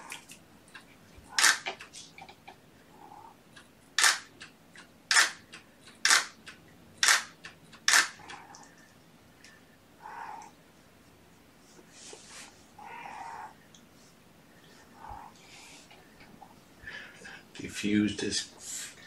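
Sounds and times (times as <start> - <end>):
camera shutter firing: 1.4 - 1.7, 4.0 - 4.3, 5.1 - 5.4, 6.0 - 6.4, 7.0 - 8.2.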